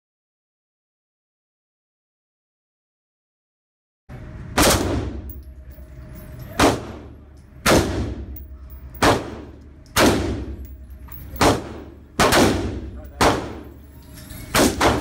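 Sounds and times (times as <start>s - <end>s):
rifle shots: 4.6s - 5.3s, 6.6s - 13.8s, 14.5s - 15.0s.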